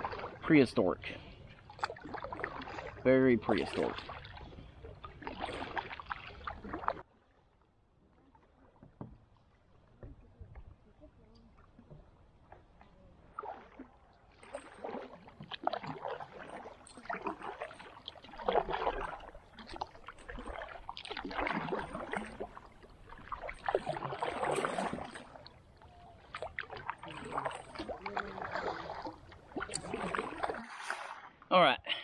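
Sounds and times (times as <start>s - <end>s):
kayak paddle splashing in water: 0.0s - 31.4s
water dripping off paddle: 11.3s - 31.0s.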